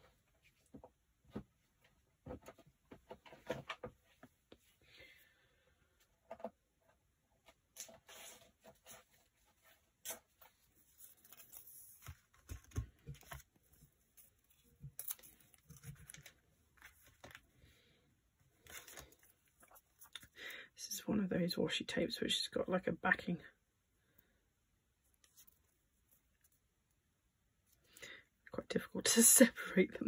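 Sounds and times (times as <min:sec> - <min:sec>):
paper rustling: 0:07.8 - 0:17.5, 0:18.6 - 0:20.3.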